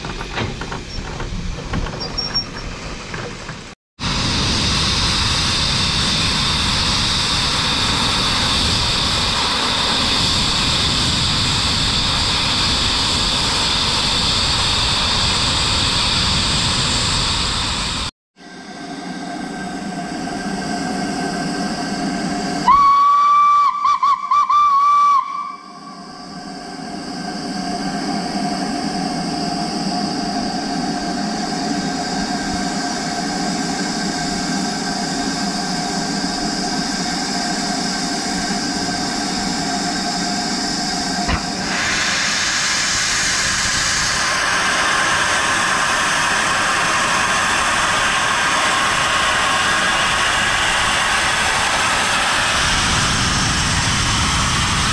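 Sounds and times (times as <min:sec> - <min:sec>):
steam hissing: 0:02.7 - 0:54.9
steam locomotive whistle: 0:22.6 - 0:26.1.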